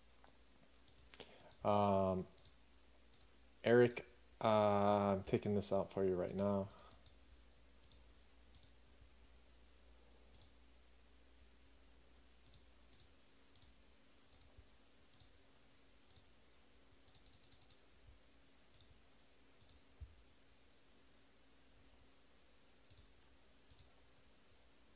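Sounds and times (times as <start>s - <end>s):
faint clicking: 0.2s - 1.7s, 2.3s - 3.4s, 6.3s - 7.2s, 7.8s - 8.8s, 10.3s - 10.6s, 12.4s - 15.4s, 16.0s - 16.3s, 17.0s - 17.8s, 18.7s - 19.0s, 19.6s - 20.2s, 22.8s - 24.0s.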